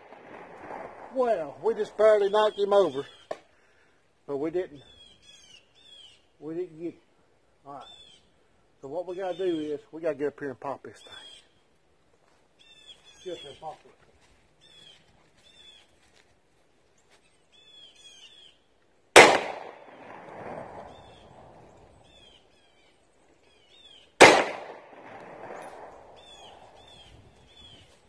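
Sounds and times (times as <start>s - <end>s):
birds chirping faintly: 1.1s - 19.1s, 20.6s - 24.2s, 25.5s - 28.0s
pistol shots with echo: 19.2s - 21.4s, 24.2s - 26.7s.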